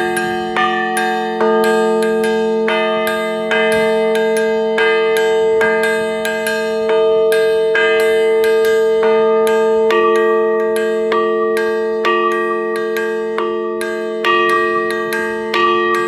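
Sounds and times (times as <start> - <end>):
bronze bell struck with mallet: 0.0 - 16.0.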